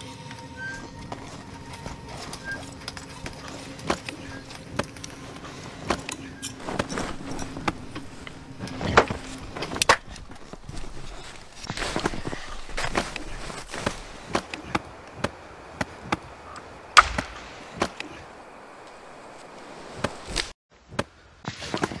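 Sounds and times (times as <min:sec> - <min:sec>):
footsteps crunching in snow: 0:00.0 - 0:20.6
twigs snapping: 0:00.9 - 0:20.5.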